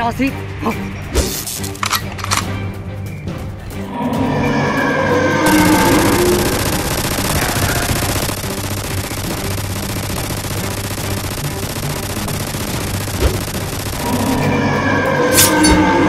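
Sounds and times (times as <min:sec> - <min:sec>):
background music: 0:00.0 - 0:16.0
rapid gunfire rattle: 0:05.4 - 0:16.0.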